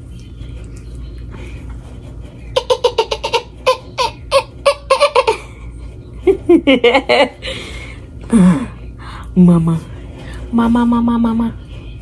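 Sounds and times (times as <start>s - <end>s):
high-pitched giggling: 2.5s - 5.7s.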